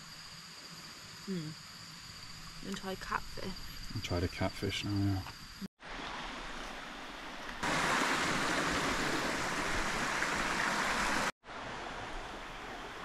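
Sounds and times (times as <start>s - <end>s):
stream water rushing: 5.8s - 13.0s.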